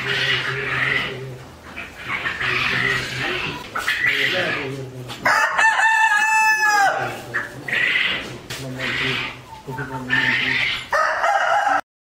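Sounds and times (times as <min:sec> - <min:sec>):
rooster crowing: 0:05.2 - 0:07.2, 0:10.9 - 0:11.9.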